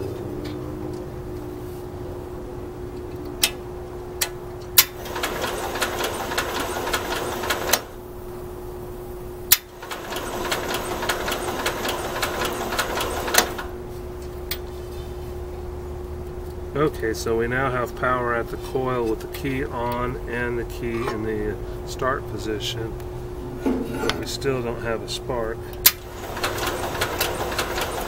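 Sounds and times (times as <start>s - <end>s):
engine cranked by starter: 4.8s - 8.0s, 9.5s - 13.7s, 25.8s - 28.0s.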